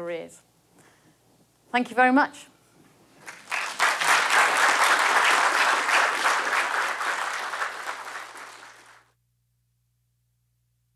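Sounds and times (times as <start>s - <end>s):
audience applauding: 3.2s - 9.1s.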